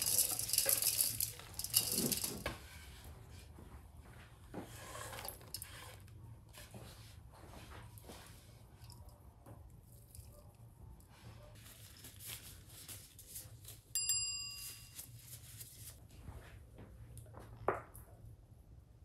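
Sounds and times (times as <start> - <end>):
rubber gloves rustling: 11.5 - 16.1.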